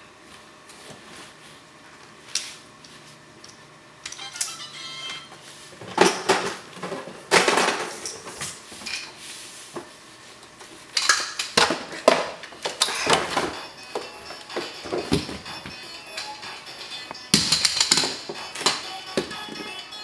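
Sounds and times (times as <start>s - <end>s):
plastic toys clattering: 17.4s - 19.6s.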